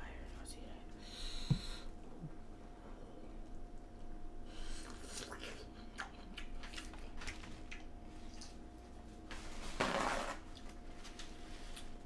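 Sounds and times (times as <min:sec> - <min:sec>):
wet eating clicks and smacks: 0:04.9 - 0:08.6
paper towel rustle: 0:09.2 - 0:11.9.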